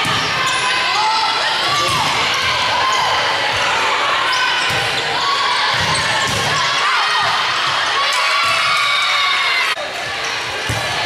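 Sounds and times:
sneakers squeaking on court floor: 0.0 - 6.8.

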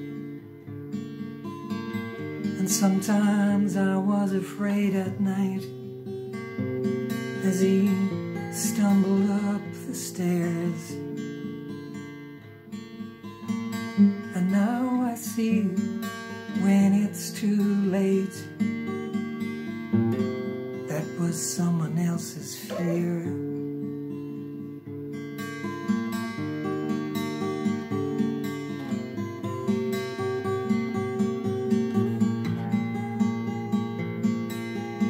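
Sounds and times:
acoustic guitar strumming: 0.0 - 35.0
man singing: 2.6 - 5.7, 7.4 - 11.0, 14.0 - 18.6, 20.9 - 23.6.

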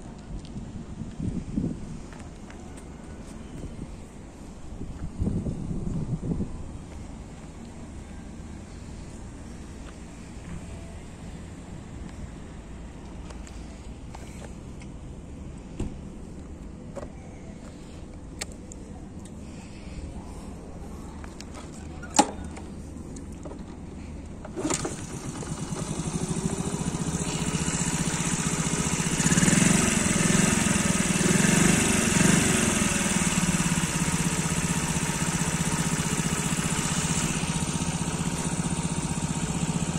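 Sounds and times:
motorcycle engine starting and idling: 21.3 - 39.9.

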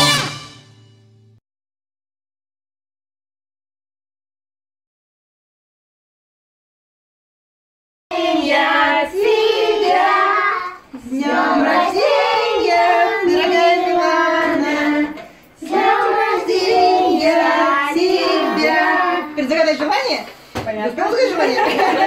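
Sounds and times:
children and adults singing: 8.1 - 19.5.

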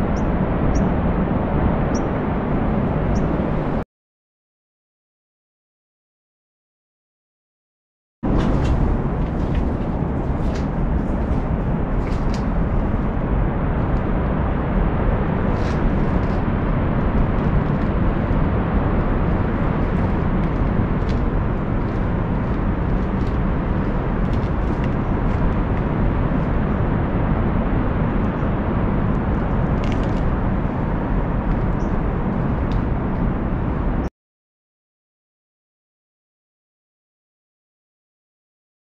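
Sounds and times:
wind rumble on microphone: 0.0 - 3.8, 8.2 - 34.1.

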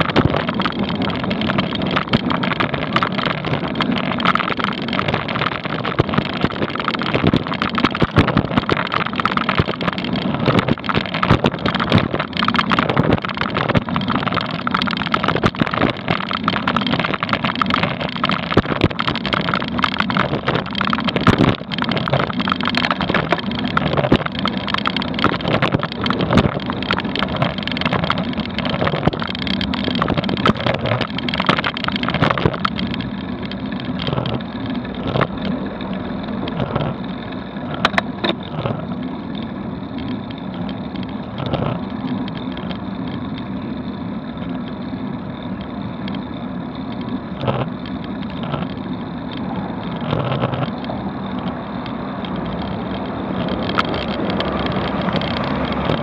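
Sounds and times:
camera mount rattling: 0.0 - 35.6, 36.4 - 37.0, 49.8 - 51.6, 52.2 - 56.0
bicycle riding rumble: 0.0 - 56.0.

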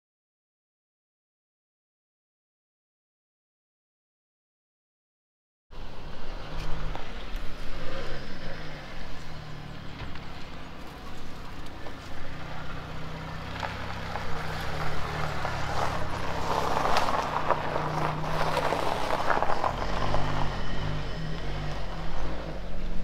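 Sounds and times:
car engine running at low speed: 5.7 - 23.0
tyre noise on dirt: 6.3 - 23.0.

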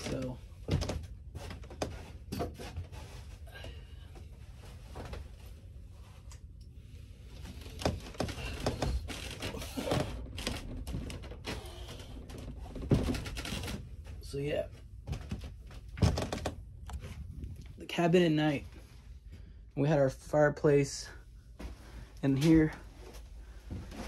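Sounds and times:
low rumble: 15.9 - 19.6.

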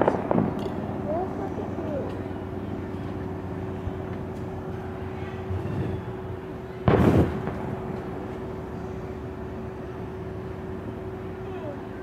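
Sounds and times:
firework bang: 0.0 - 1.2, 6.8 - 8.8
steady low hum: 0.0 - 12.0.

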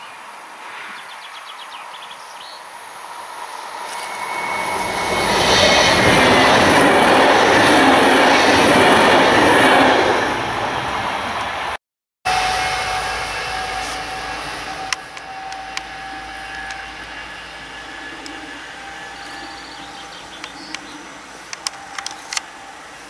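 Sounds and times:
electric train hum and whine: 2.6 - 23.0
train rail noise: 2.6 - 23.0
sharp clicks: 20.4 - 20.9, 21.5 - 22.5.

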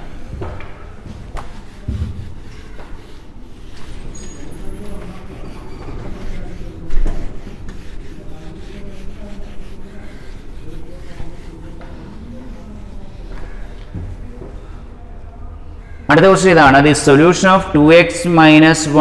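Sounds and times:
duster rubbing on whiteboard: 0.0 - 14.9.

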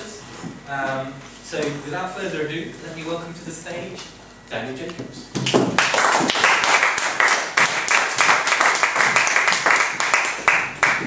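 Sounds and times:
audience applauding: 5.8 - 11.0.

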